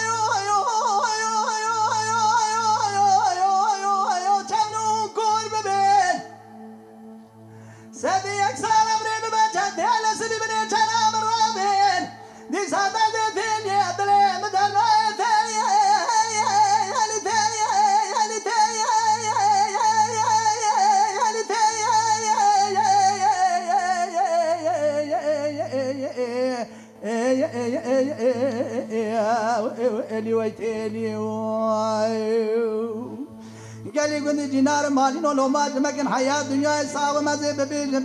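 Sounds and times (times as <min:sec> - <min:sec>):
man chanting ornamented notes: 0:00.0 - 0:07.2, 0:07.8 - 0:38.0.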